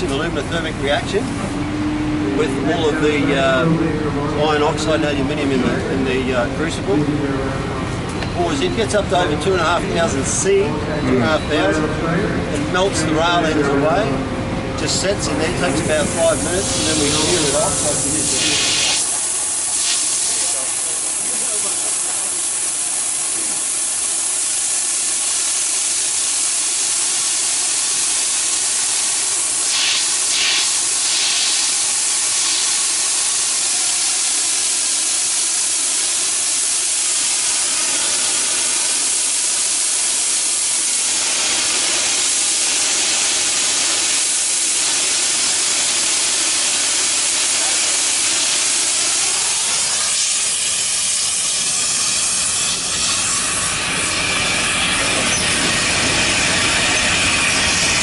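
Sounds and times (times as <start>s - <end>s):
gas torch hissing: 15.0s - 58.0s.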